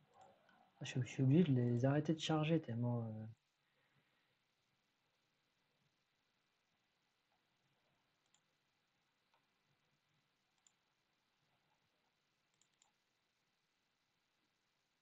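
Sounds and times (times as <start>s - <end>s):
computer mouse clicks: 8.2s - 8.5s, 9.3s - 9.5s, 10.5s - 10.8s, 12.5s - 13.0s.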